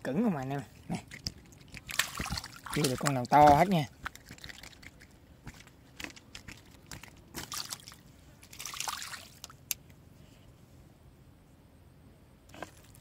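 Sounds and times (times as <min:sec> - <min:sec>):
water splashing and dripping: 0:00.8 - 0:09.6.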